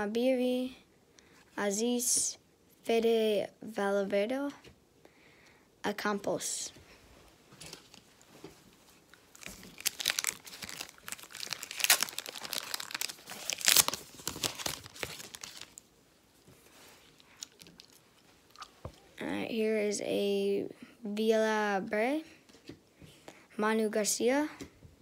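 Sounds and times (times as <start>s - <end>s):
handling of cards: 7.5s - 19.1s
wrapper tearing and crinkling: 9.2s - 15.9s, 17.1s - 18.7s.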